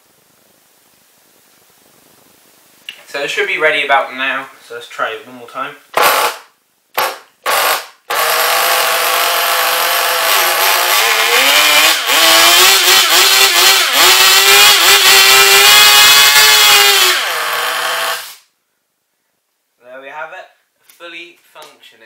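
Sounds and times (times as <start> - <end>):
small nitro engine revving: 7.5 - 18.4.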